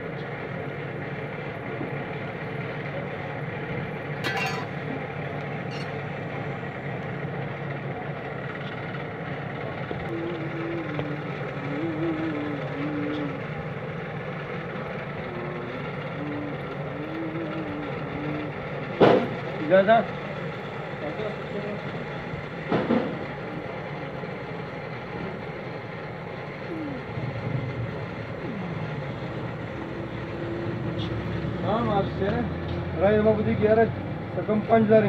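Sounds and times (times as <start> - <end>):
forge blower rushing air: 0.0 - 35.0
short wavering tones: 5.7 - 6.0, 26.6 - 31.3.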